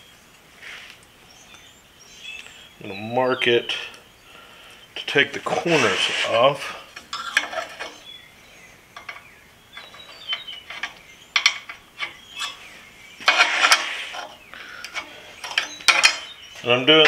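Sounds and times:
metal scrape and clatter: 0:05.4 - 0:08.0, 0:09.0 - 0:16.4
metal clicks and clinks: 0:09.0 - 0:12.6.

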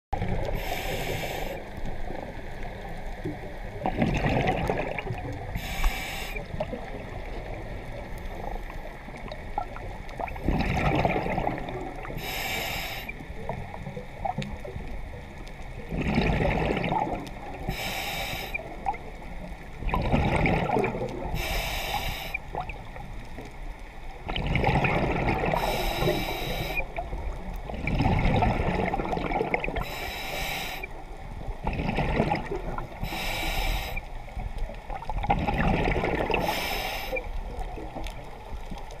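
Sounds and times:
gurgling exhaled bubbles: 0:00.2 - 0:12.7, 0:15.7 - 0:23.1, 0:24.2 - 0:30.0, 0:31.5 - 0:34.0, 0:34.6 - 0:39.0
regulator inhale hiss: 0:00.4 - 0:02.2, 0:05.4 - 0:06.8, 0:12.0 - 0:13.5, 0:17.4 - 0:19.0, 0:21.2 - 0:22.6, 0:25.5 - 0:27.1, 0:29.8 - 0:31.1, 0:32.9 - 0:34.4, 0:36.4 - 0:37.4.

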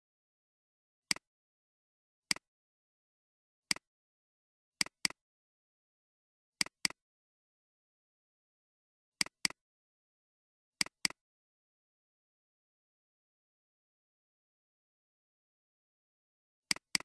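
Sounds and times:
computer mouse clicks: 0:04.8 - 0:05.2, 0:06.6 - 0:07.0, 0:09.2 - 0:09.6, 0:10.8 - 0:11.2, 0:16.7 - 0:17.0.

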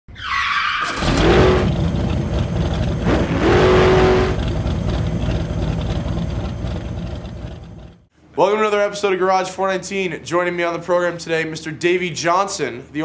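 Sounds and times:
car engine revving: 0:00.8 - 0:08.1.

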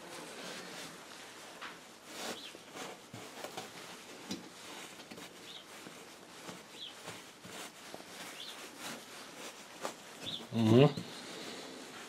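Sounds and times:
hands rustling fibre blanket: 0:00.0 - 0:12.0
small bird chirping: 0:08.3 - 0:08.6, 0:10.2 - 0:11.1.

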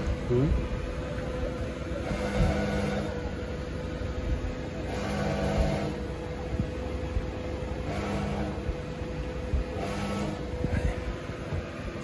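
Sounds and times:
metal lathe humming: 0:00.0 - 0:12.0.

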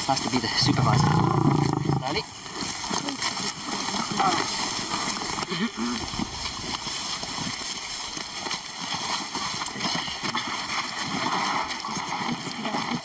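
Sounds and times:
footsteps through dry grass: 0:02.4 - 0:11.6.

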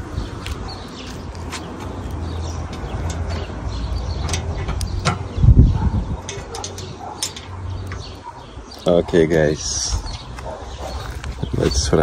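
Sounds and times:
light metal ticks: 0:02.1 - 0:03.4
wire basket clinking on grill: 0:06.2 - 0:08.0.

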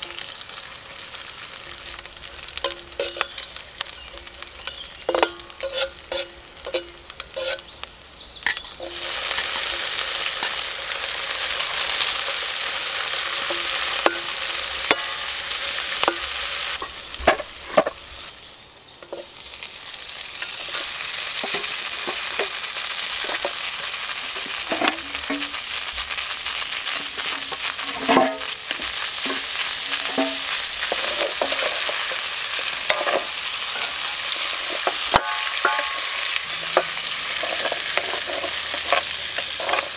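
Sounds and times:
food sizzling in oil: 0:00.0 - 0:39.9
metal spatula scraping pan: 0:01.7 - 0:07.8, 0:08.4 - 0:18.0, 0:26.9 - 0:39.9.

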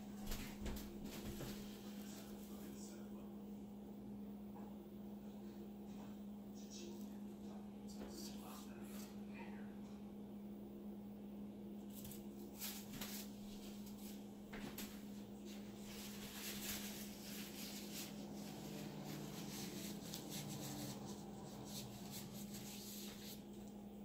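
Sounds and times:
steady low hum: 0:00.0 - 0:24.0
rustling and scraping handling noises: 0:11.9 - 0:23.8.

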